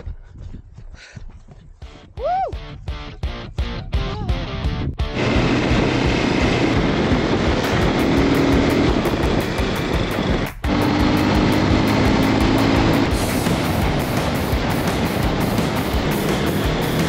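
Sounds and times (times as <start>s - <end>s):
wind rush on microphone: 4.2s - 11.8s
dirt bike engine running: 5.0s - 17.0s.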